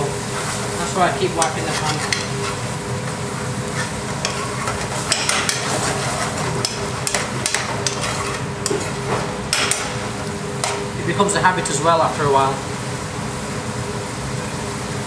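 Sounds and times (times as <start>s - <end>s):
metal ladle scraping a pan: 1.4s - 2.7s, 3.6s - 9.0s.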